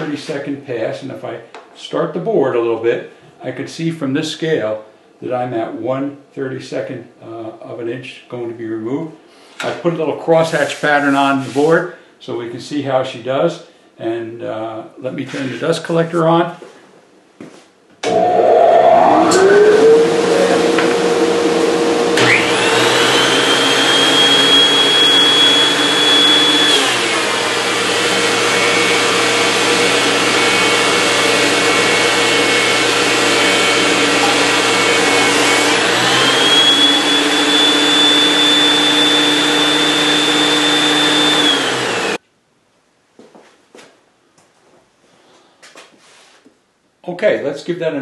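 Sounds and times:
dust collector motor spinning up: 0:18.0 - 0:42.2
planer whine: 0:18.0 - 0:42.2.

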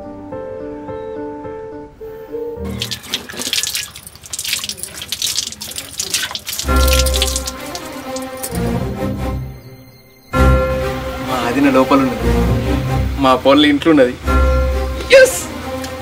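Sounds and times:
water splashing and pouring: 0:02.6 - 0:08.7.

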